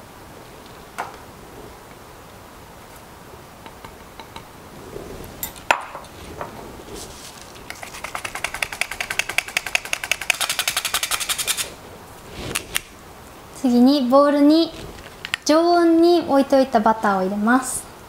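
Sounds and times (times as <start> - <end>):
metal sifting cup rattling: 6.9 - 11.8.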